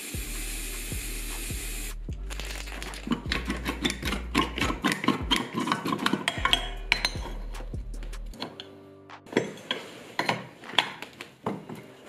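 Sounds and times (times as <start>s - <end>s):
aerosol spray hissing: 0.0s - 2.0s
clamp handle clicking metallically: 3.2s - 7.4s.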